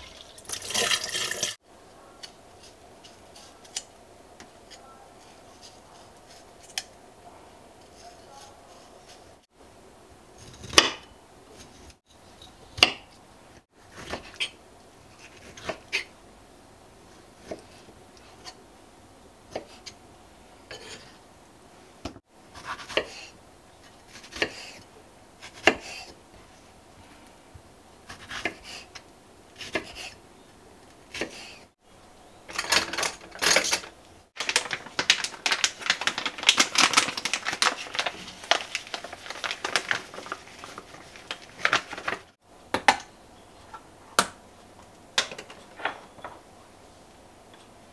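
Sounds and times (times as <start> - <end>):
plastic packet crinkling: 34.4 - 42.4.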